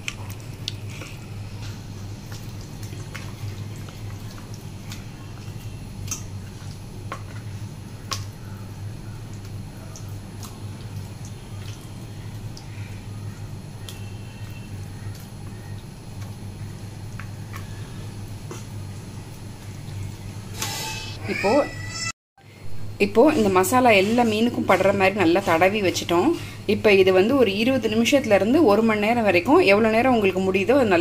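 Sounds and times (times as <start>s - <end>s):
wet squelching of paste: 0.0s - 8.5s.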